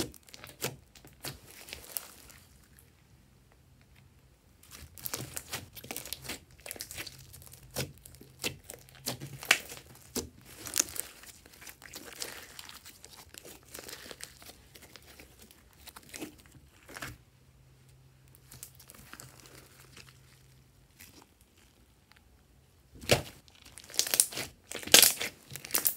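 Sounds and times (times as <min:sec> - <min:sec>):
slime crackling and popping: 0:00.0 - 0:02.5, 0:04.6 - 0:17.2, 0:23.0 - 0:25.9.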